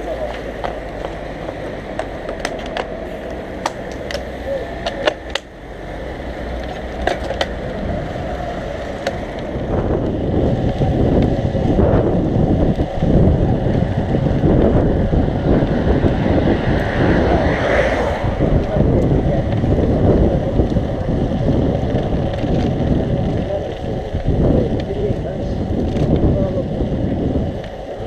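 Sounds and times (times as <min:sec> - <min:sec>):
road rumble: 0:00.0 - 0:28.0
wind noise on microphone: 0:06.3 - 0:28.0.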